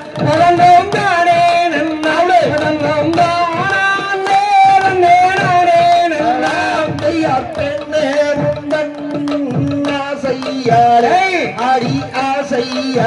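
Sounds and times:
percussion rhythm: 0.0 - 13.0
hand claps: 0.2 - 10.6.

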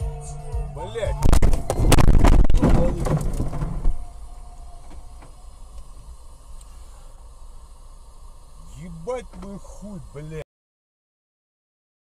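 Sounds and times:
steady road noise: 0.0 - 10.4
car crash impact: 1.2 - 6.2
scraping and rattling metal: 1.4 - 4.1.

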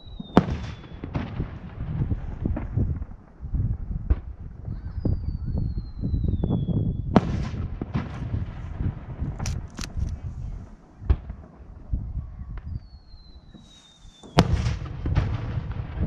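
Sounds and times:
firework shell whistle: 12.6 - 14.5.

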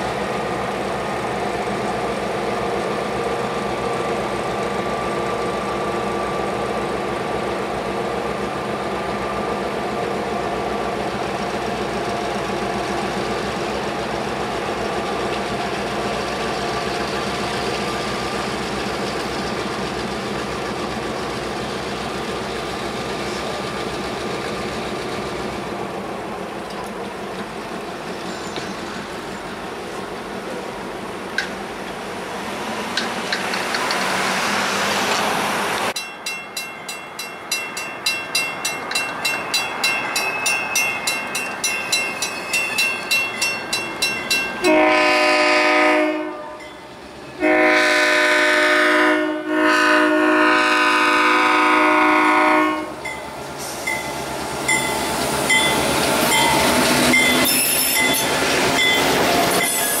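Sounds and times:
freight train rumbling past: 0.0 - 60.0
crossing bell dinging: 36.0 - 44.8, 46.5 - 46.9, 53.0 - 60.0
locomotive horn blasts: 44.6 - 46.7, 47.4 - 53.0.

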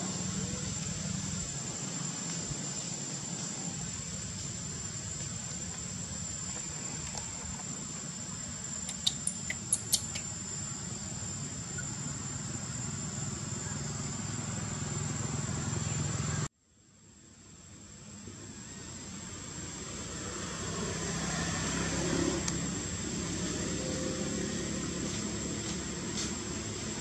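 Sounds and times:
high insect drone: 0.0 - 27.0
outdoor background hiss: 0.0 - 27.0
baby monkey squeaking: 8.9 - 10.2.

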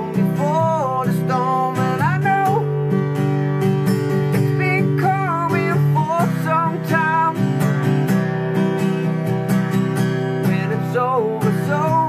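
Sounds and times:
person singing: 0.0 - 2.9, 4.2 - 7.8, 10.4 - 12.0
acoustic guitar strumming: 0.0 - 12.0.

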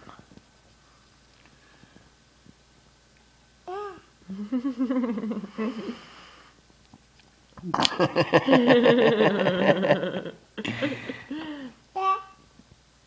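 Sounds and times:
baby babbling: 3.7 - 4.1, 12.0 - 12.4.

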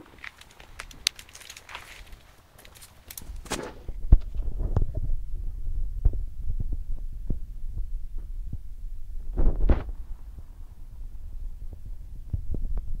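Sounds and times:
rustle: 0.0 - 4.9
low microphone rumble: 3.2 - 13.0.

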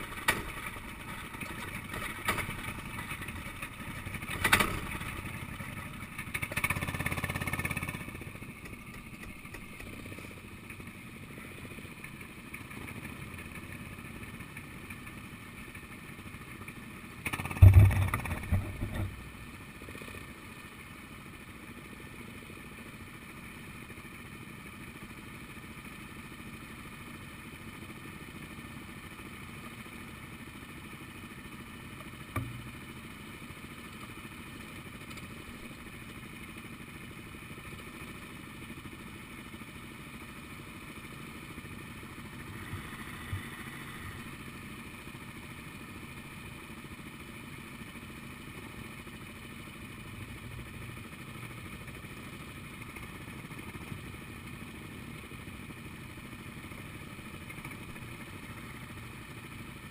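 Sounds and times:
go-kart engine running: 0.0 - 59.9
heavy thumps and rattling: 17.4 - 19.4.

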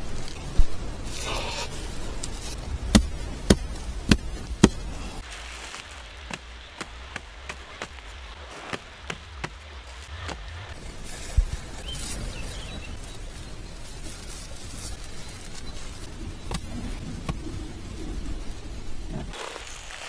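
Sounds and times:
axe chopping wood: 2.9 - 5.0.

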